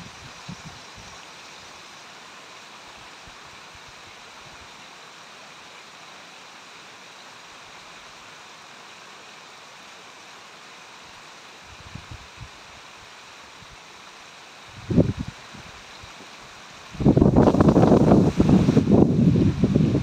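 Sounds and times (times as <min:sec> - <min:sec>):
low rumbles on microphone: 0:17.0 - 0:20.0.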